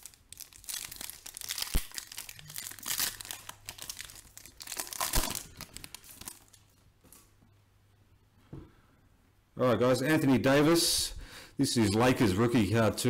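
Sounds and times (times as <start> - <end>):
foil wrapper crinkling and tearing: 0.0 - 6.7.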